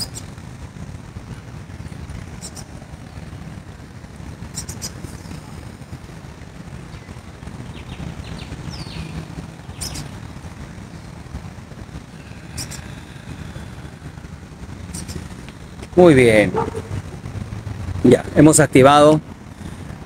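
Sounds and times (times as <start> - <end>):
bird chirps: 0.0 - 0.3, 2.4 - 2.7, 4.5 - 5.0, 6.9 - 10.1, 12.2 - 12.9, 14.9 - 15.3
distant traffic rumble: 0.0 - 20.0.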